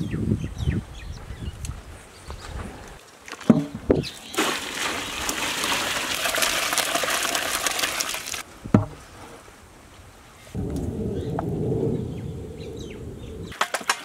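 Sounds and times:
liquid gushing from a pot: 0:04.4 - 0:08.4.

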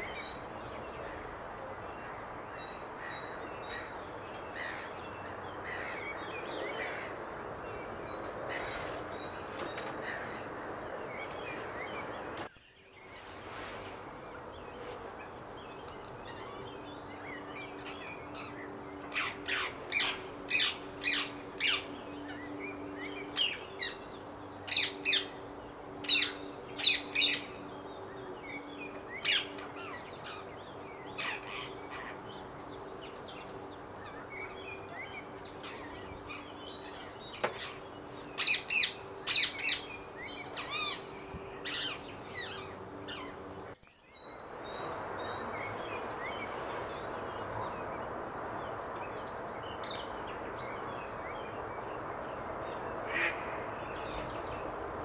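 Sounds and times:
rushing background noise: 0:00.0 - 0:55.0.

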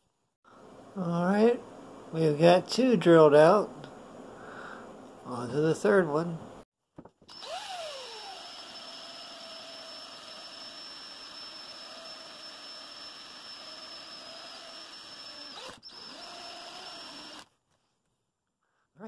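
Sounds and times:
electric drill whining: 0:07.2 - 0:17.5.

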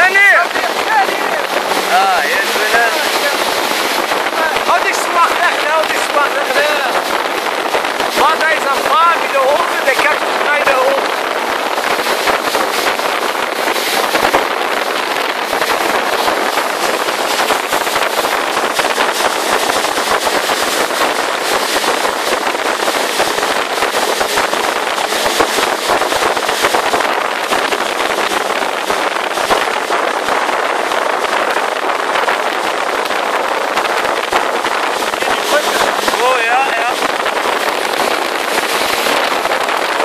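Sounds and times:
jet ski engine: 0:00.0 - 0:40.0
wind buffeting microphone: 0:00.0 - 0:40.0
water spray: 0:00.2 - 0:40.0.

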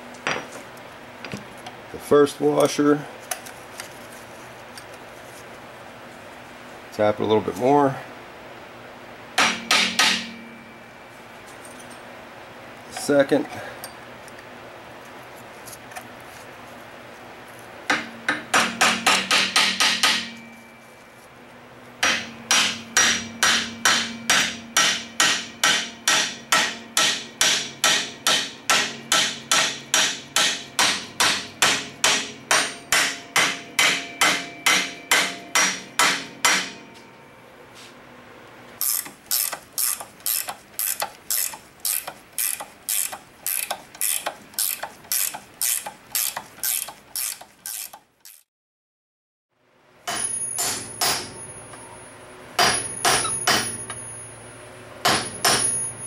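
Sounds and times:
hammer tapping ringing steel: 0:09.4 - 0:10.8, 0:22.0 - 0:37.1
sharp metal clicks: 0:38.8 - 0:48.4.

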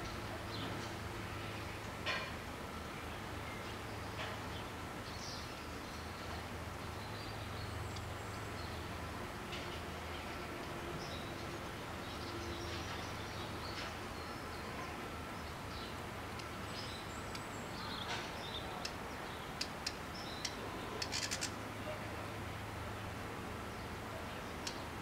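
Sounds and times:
small birds chirping: 0:03.0 - 0:22.3, 0:23.6 - 0:25.0
sharp clicks: 0:19.6 - 0:21.6.

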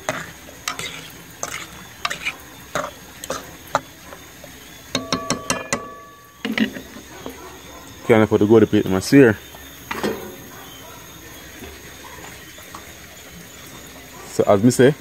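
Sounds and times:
metal spoon scraping metal pot: 0:00.0 - 0:03.8
pot ringing: 0:04.9 - 0:06.8.

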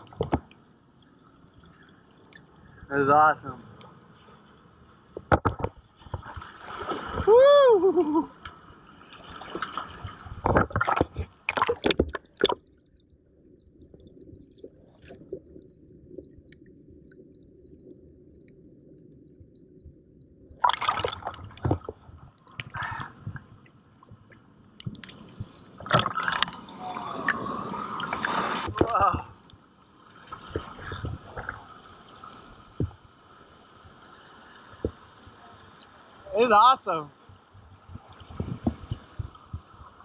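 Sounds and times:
seawater splashing and gurgling: 0:03.6 - 0:19.8, 0:20.4 - 0:40.0.

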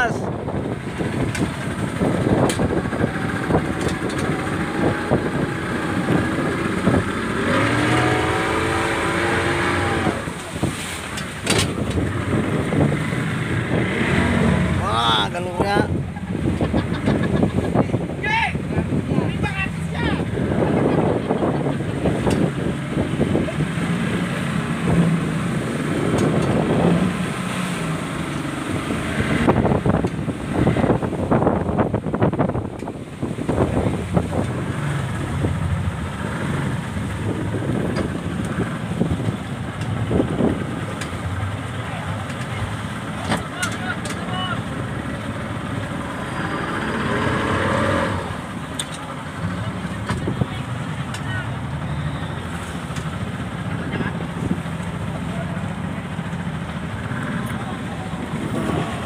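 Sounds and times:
speedboat outboard motor running: 0:00.0 - 0:59.0
water noise: 0:00.0 - 0:59.0
wind: 0:00.0 - 0:59.0.

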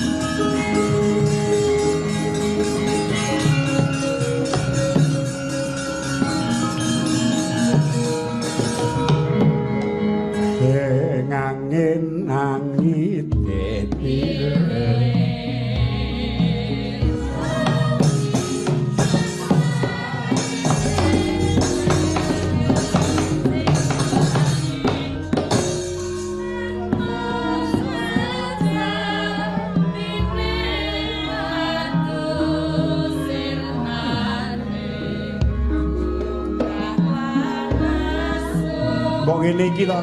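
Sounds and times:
gamelan music: 0:00.0 - 0:12.4, 0:13.4 - 0:40.0
voices singing: 0:10.4 - 0:40.0.

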